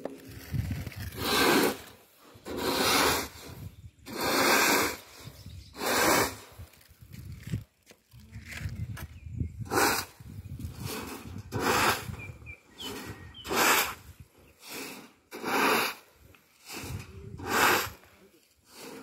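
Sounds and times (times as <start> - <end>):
tin scraping corn off concrete: 0.0 - 1.9, 2.5 - 5.0.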